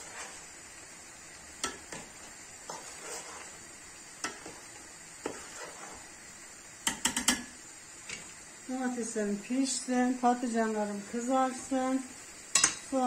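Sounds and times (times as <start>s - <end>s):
eggplant sizzling in hot oil: 0.0s - 13.0s
metal spoon clinking in pot: 12.5s - 12.8s.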